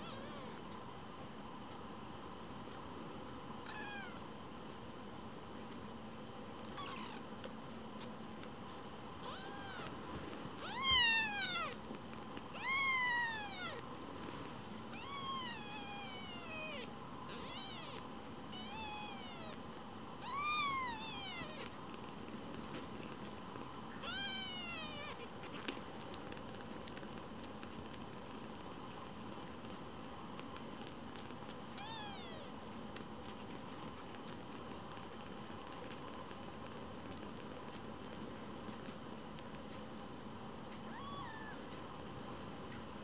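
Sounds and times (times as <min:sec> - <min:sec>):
kitten mewing: 0:03.6 - 0:04.2, 0:06.7 - 0:07.2, 0:09.2 - 0:09.9, 0:10.6 - 0:11.9, 0:12.5 - 0:14.0, 0:14.8 - 0:19.6, 0:20.2 - 0:21.8, 0:24.0 - 0:26.2, 0:31.8 - 0:32.6, 0:40.9 - 0:41.6.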